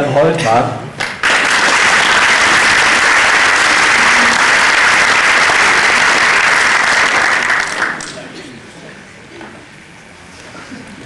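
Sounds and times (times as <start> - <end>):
audience applauding: 1.0 - 8.2.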